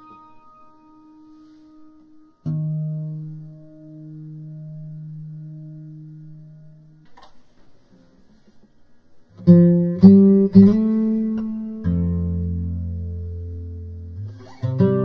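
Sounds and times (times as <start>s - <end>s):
strummed guitar chords: 0.0s - 7.4s, 9.4s - 15.0s
guitar music: 0.0s - 8.2s, 9.3s - 15.0s.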